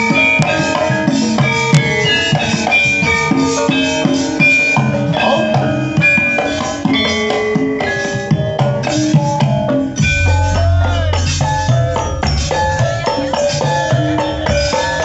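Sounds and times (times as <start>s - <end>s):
drum strokes: 0.0s - 15.0s
metallophones and gongs ringing: 0.0s - 15.0s.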